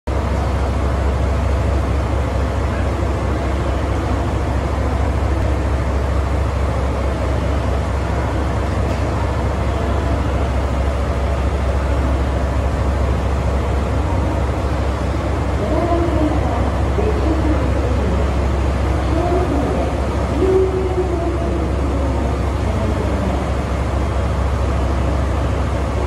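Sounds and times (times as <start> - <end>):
diesel locomotive idling: 0.1 - 26.0.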